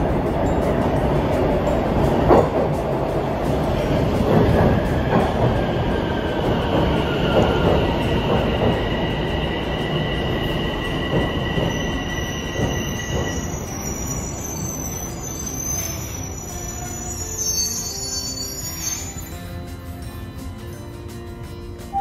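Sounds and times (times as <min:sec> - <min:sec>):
train wheels rumbling on rails: 0:00.0 - 0:22.0
high-pitched wheel squeal: 0:05.7 - 0:19.6
thin high whine: 0:09.0 - 0:22.0.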